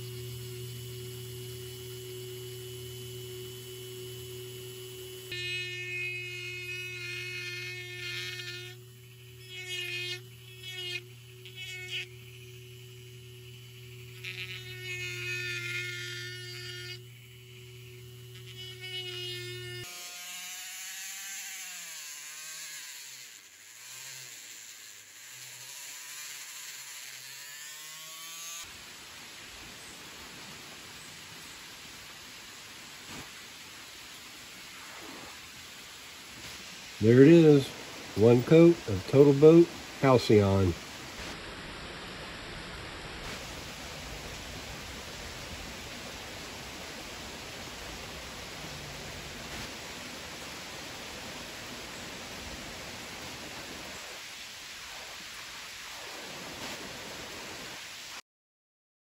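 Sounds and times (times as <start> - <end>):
steady hiss: 0.0 - 20.5, 21.8 - 58.2
bit grinding into wood: 0.0 - 28.7
rotary tool whining: 0.0 - 28.7.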